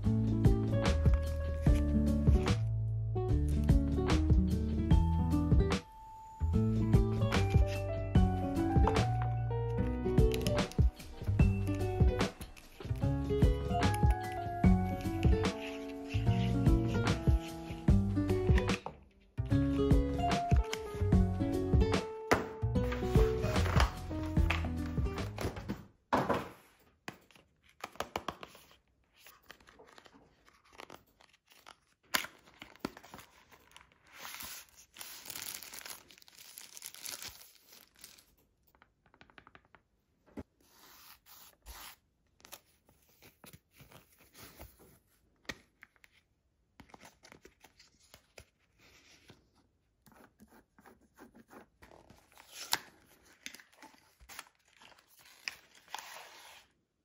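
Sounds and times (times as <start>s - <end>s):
cardboard scraping: 40.6s - 42.0s
paper and plastic tearing: 51.9s - 56.7s.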